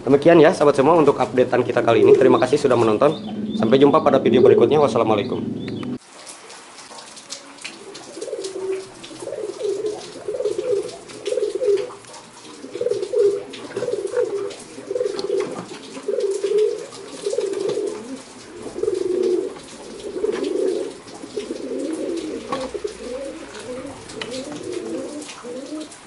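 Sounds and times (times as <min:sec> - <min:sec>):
pigeons cooing: 0:00.0 - 0:06.0, 0:06.9 - 0:26.0
pigeon clicks: 0:06.9 - 0:26.0.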